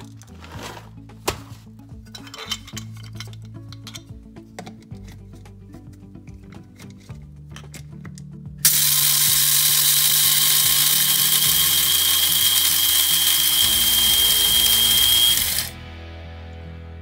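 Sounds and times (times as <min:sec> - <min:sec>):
electric grinder whirring: 0:08.6 - 0:15.8.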